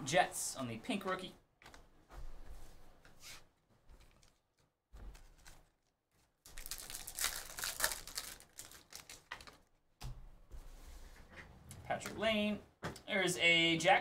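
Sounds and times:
card packs crinkling and clicking: 4.0s - 9.8s.

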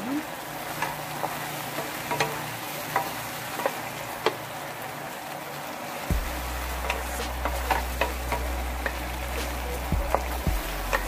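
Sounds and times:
meat sizzling in pan: 0.0s - 11.0s
spatula scraping frying pan: 0.6s - 4.5s, 6.2s - 11.0s.

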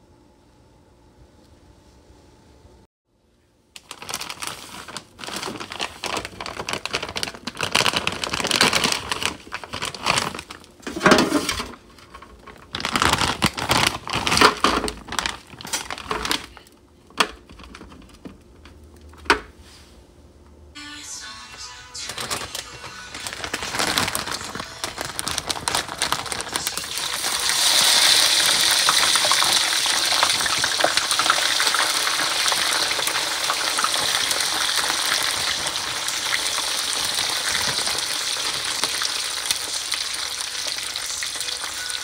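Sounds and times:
plastic bag crinkling: 3.8s - 16.8s, 21.7s - 42.0s.

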